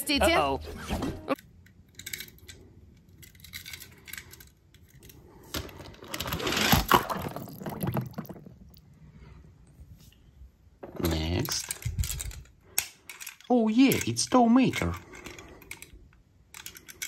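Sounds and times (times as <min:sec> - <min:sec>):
toy car clicking on plastic track: 0:11.4 - 0:17.0.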